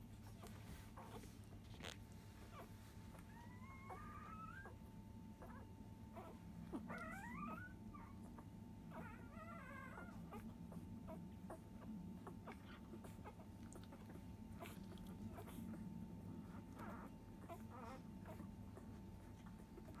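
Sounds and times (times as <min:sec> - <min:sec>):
puppies squeaking: 0:00.4 - 0:04.8, 0:05.4 - 0:10.5, 0:16.4 - 0:18.5
puppies crying high: 0:02.5 - 0:04.8, 0:05.4 - 0:10.4.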